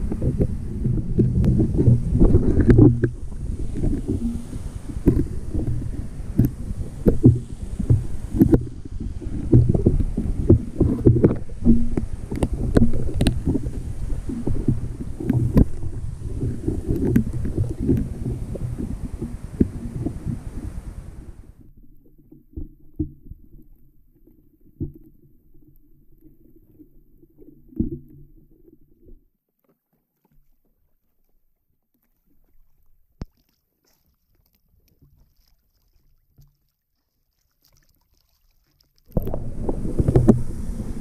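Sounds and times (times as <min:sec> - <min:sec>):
muffled underwater rumble: 0:00.0 - 0:29.2, 0:39.1 - 0:41.0
muffled water sloshing: 0:00.0 - 0:41.0.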